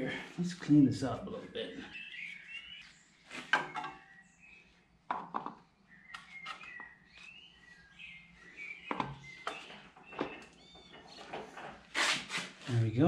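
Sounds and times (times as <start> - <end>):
birds chirping: 0.0 - 13.0
gloved hand rubbing metal: 11.9 - 12.6.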